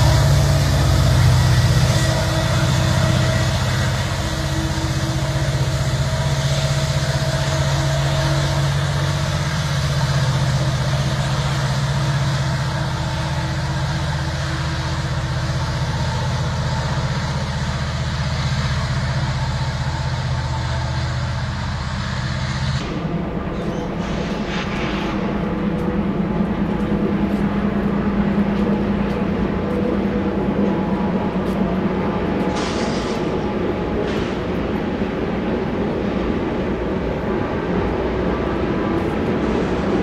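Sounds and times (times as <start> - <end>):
diesel freight train running: 0.0 - 40.0.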